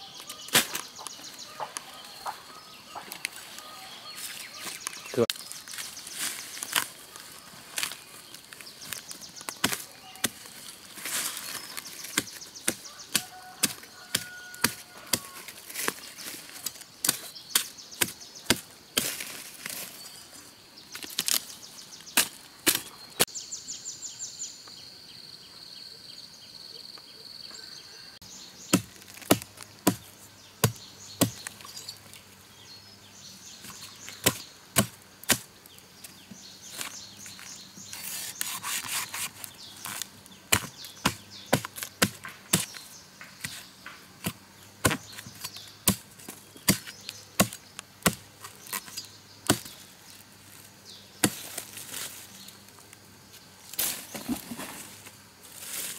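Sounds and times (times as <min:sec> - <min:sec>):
blade chopping tubers: 0:08.8 - 0:19.8, 0:28.7 - 0:31.7, 0:33.6 - 0:49.8.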